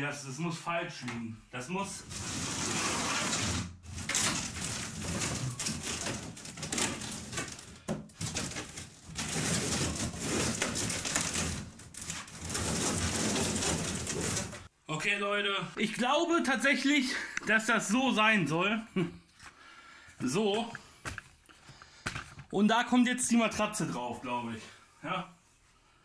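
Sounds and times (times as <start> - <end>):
cardboard scraping and rustling: 2.0 - 14.7.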